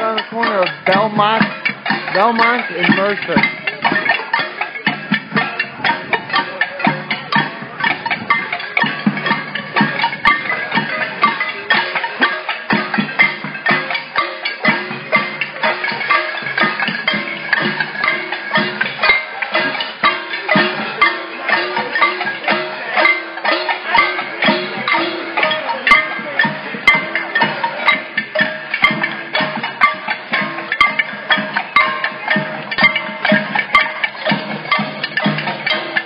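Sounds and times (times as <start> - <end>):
pots and pans beaten with spoons: 0.0 - 36.0.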